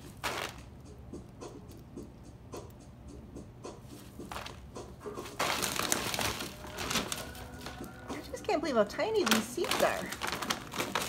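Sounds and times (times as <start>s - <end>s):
seed and bag rustling: 0.0s - 0.6s, 5.2s - 11.0s.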